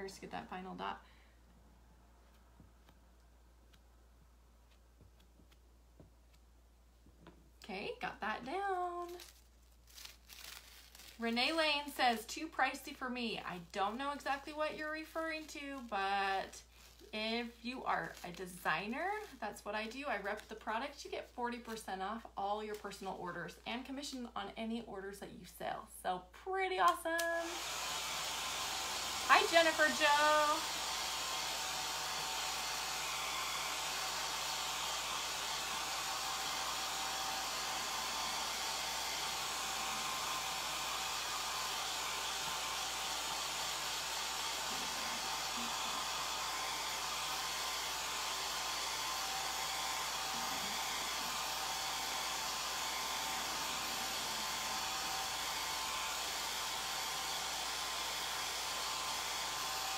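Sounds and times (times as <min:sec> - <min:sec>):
hair dryer blowing air: 0:27.1 - 0:59.9.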